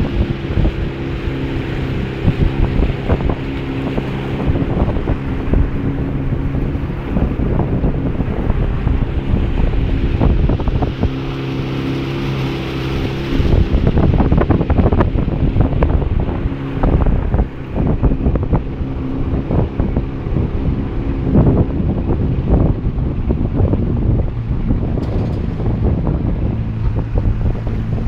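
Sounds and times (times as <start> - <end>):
motorboat engine running: 0.0 - 28.0
wind buffeting microphone: 0.0 - 28.0.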